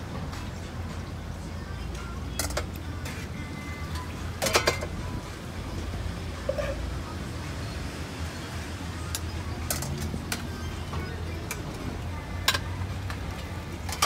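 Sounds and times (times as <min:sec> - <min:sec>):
utensils and plastic clinking: 0:02.3 - 0:03.3, 0:03.9 - 0:05.0, 0:09.1 - 0:14.0.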